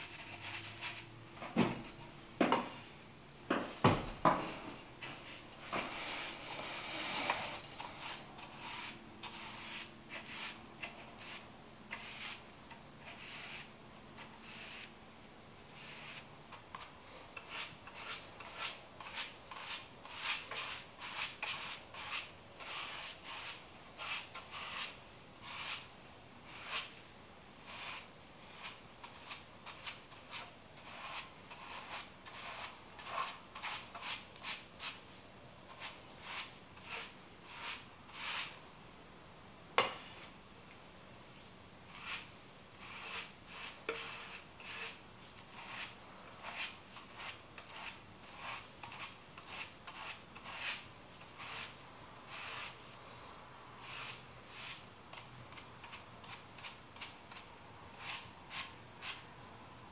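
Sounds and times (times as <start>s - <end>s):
paintbrush strokes on wood: 0.0s - 1.1s, 5.0s - 12.4s, 13.0s - 14.9s, 15.8s - 27.0s, 27.6s - 35.0s, 41.9s - 53.2s, 53.8s - 55.2s.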